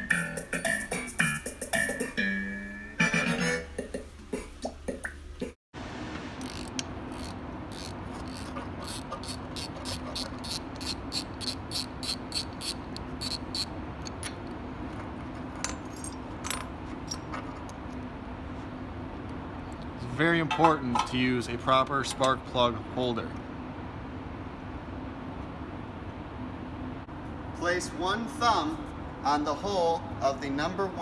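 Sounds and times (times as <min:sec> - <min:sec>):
steady low hum: 0:03.8 - 0:31.0
socket ratchet clicking: 0:06.4 - 0:14.5.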